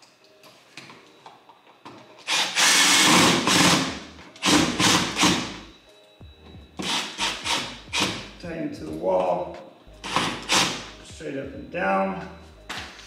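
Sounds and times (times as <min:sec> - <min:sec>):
cordless drill driving screws: 0:02.3 - 0:05.6.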